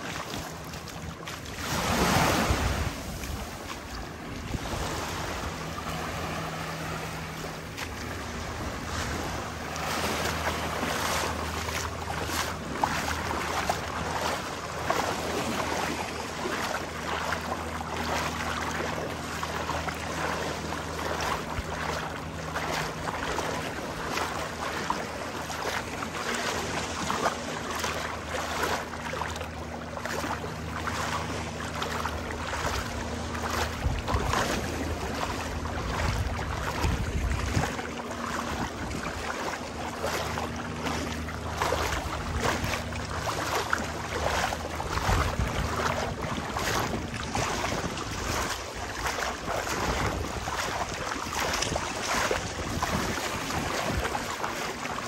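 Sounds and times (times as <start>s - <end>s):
boat engine running: 0.0s - 55.0s
water splashing: 0.0s - 55.0s
wind on microphone: 1.4s - 11.0s, 32.3s - 39.8s, 40.4s - 54.7s.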